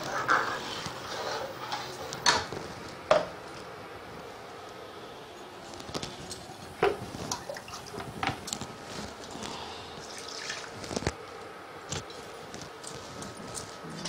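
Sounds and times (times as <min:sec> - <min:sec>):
faint steady hum: 0:00.0 - 0:14.0
thick mixture bubbling: 0:05.3 - 0:14.0.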